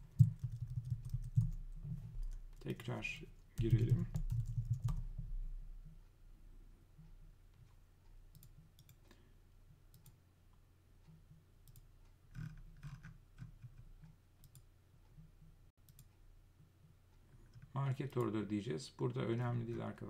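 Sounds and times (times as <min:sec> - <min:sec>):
computer mouse clicks: 0:07.6 - 0:09.2, 0:09.9 - 0:10.2, 0:11.6 - 0:14.7, 0:15.8 - 0:16.2.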